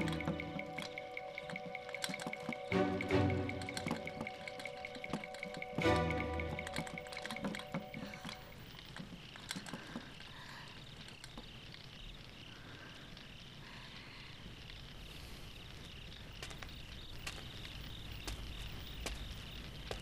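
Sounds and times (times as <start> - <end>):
sharp clicks: 0.0 - 12.4
crickets chirping: 0.0 - 20.0.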